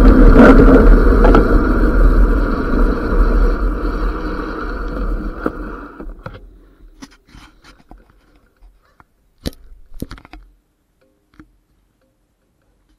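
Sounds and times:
wind noise on microphone: 0:00.0 - 0:06.2
bike clicks and knocks: 0:00.4 - 0:01.8.

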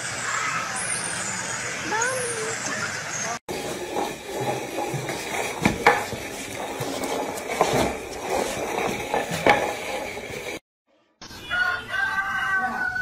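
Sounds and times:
plant pot scraping on tiles: 0:03.5 - 0:10.6.

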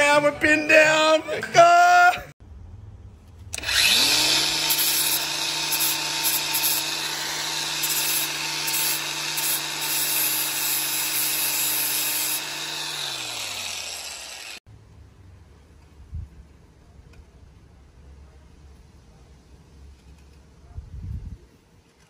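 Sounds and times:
angle grinder motor whine: 0:03.6 - 0:14.6
disc grinding wood: 0:03.6 - 0:14.6.

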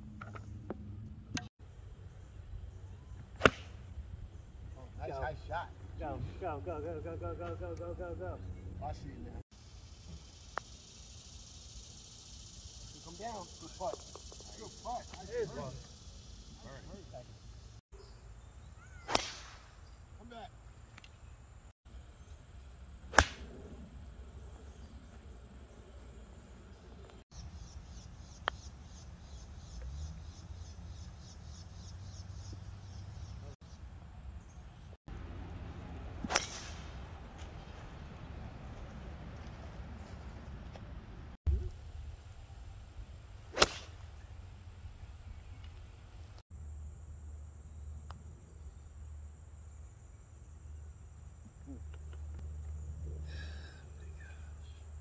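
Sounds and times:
golf club striking ball: 0:03.4 - 0:03.8, 0:23.1 - 0:23.6, 0:36.2 - 0:37.0, 0:43.5 - 0:44.0
insects chirping: 0:09.5 - 0:40.6, 0:41.8 - 0:55.0.

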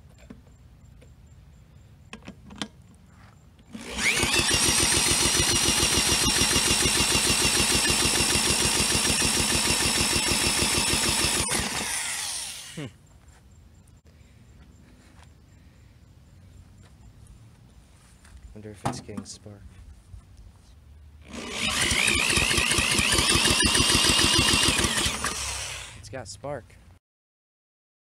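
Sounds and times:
engine cranking pulsing: 0:03.7 - 0:12.8, 0:21.2 - 0:26.0
power drill whining: 0:03.7 - 0:12.8, 0:21.2 - 0:26.0.

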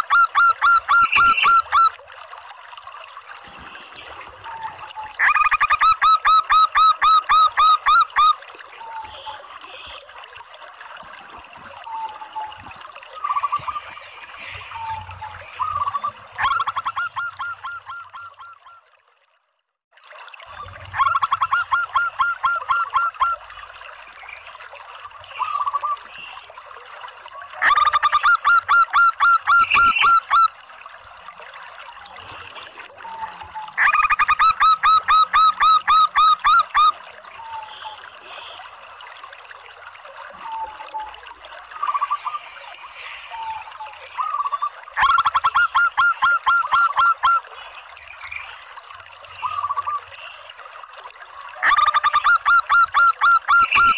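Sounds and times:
dove calling rapid notes: 0:00.0 - 0:02.0, 0:05.2 - 0:08.4, 0:15.6 - 0:18.7, 0:33.8 - 0:36.9, 0:44.2 - 0:47.4, 0:51.6 - 0:53.9.

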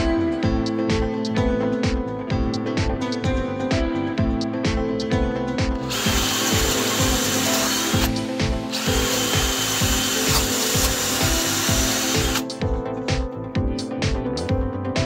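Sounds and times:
background music with beat: 0:00.0 - 0:15.0
drill boring into timber: 0:05.8 - 0:12.4.

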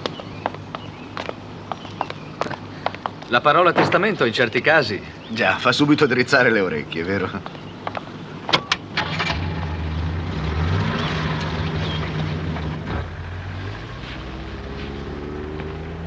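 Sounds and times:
car engine starting and running: 0:07.8 - 0:16.0.

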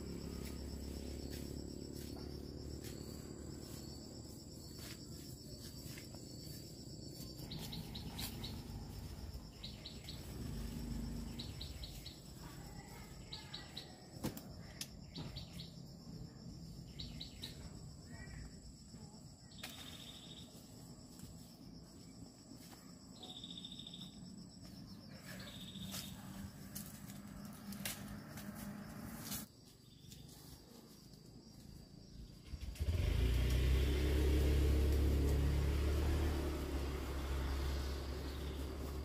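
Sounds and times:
motor engine running: 0:00.0 - 0:13.0, 0:32.3 - 0:39.0
faint insect chirring: 0:00.0 - 0:39.0.

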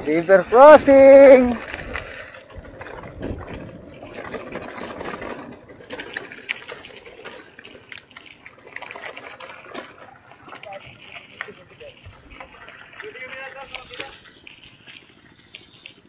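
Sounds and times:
water splashing around wheels: 0:00.0 - 0:16.0.

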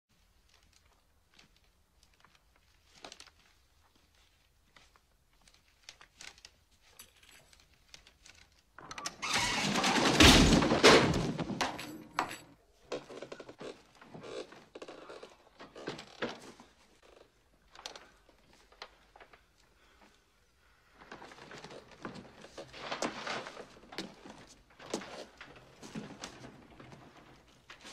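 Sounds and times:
ladder creaks and knocks: 0:08.8 - 0:13.6
wooden ladder clattering down: 0:09.0 - 0:12.4.

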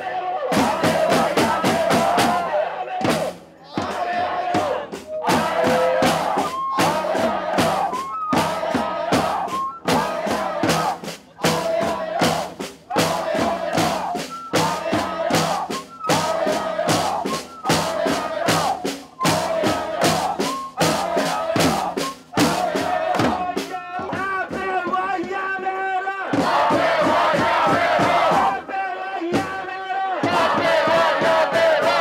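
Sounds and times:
crowd chanting: 0:00.0 - 0:32.0
hand drums beating: 0:00.5 - 0:25.6
megaphone voice: 0:00.5 - 0:26.1.

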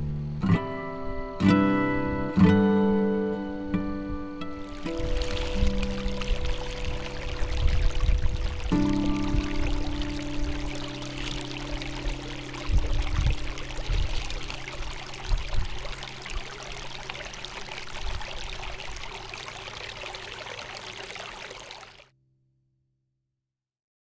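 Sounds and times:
rushing outdoor ambient noise: 0:04.4 - 0:22.0
wind thumps on microphone: 0:04.6 - 0:19.1.

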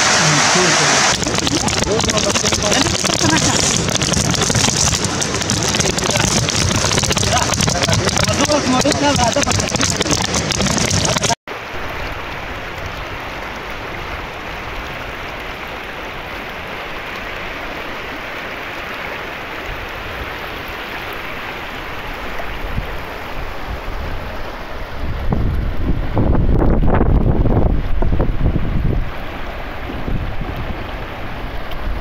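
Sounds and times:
loud noise burst: 0:00.0 - 0:11.4
river water rushing: 0:00.0 - 0:26.4, 0:27.5 - 0:32.0.

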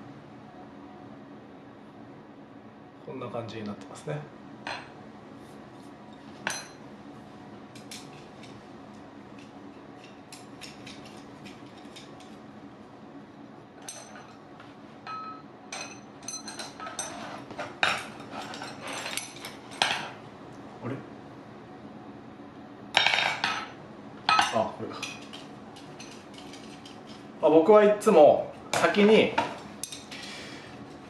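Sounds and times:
metal poles clinking together: 0:15.1 - 0:17.2.

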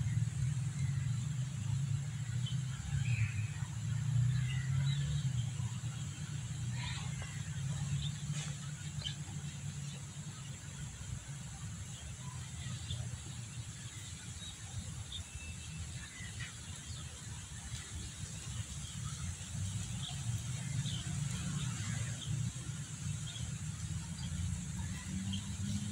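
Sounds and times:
steady high hiss: 0:00.0 - 0:25.9.

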